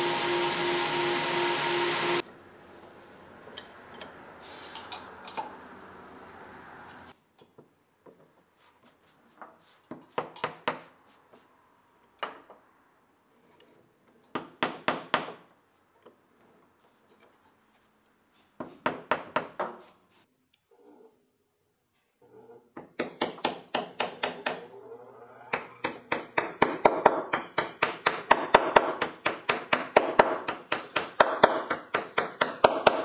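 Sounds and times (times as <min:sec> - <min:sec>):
hammer tapping wooden pegs: 0:22.8 - 0:24.6, 0:25.6 - 0:33.0.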